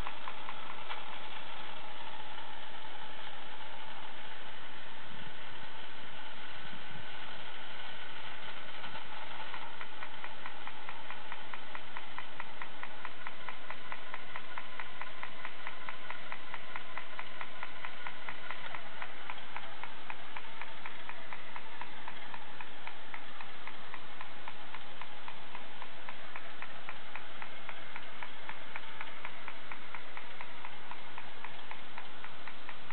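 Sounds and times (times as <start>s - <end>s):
rapid mechanical ticking: 0.0s - 32.9s
toy helicopter mechanical whir: 0.0s - 32.9s.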